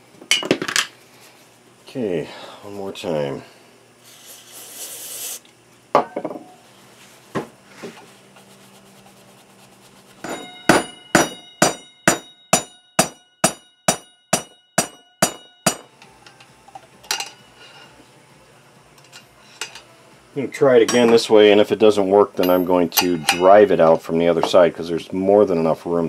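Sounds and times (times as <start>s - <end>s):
hammer blows on metal: 10.2s - 16.0s.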